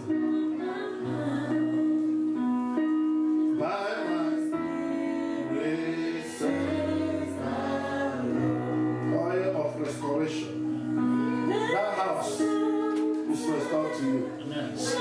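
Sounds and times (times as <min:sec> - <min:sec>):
electronic keyboard chords: 0:00.0 - 0:15.0
voices singing: 0:03.5 - 0:15.0.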